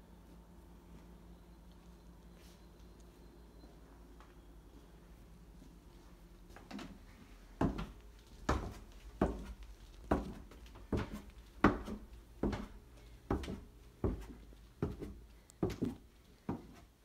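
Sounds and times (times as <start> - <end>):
footsteps on wooden stairs: 7.6 - 16.9.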